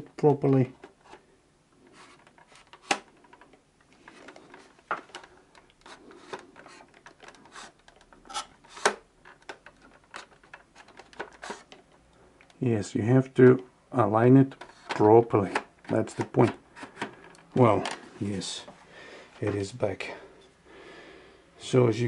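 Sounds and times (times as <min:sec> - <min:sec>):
plastic telephone scraping on wall: 0:01.9 - 0:11.8.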